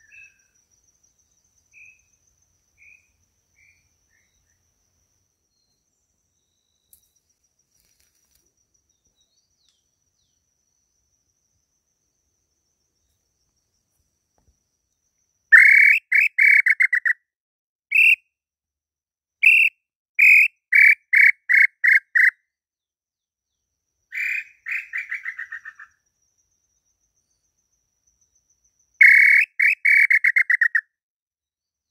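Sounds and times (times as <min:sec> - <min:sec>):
bird whistled calls: 0:15.6 - 0:17.2, 0:17.9 - 0:18.2, 0:19.4 - 0:22.3, 0:29.0 - 0:30.8.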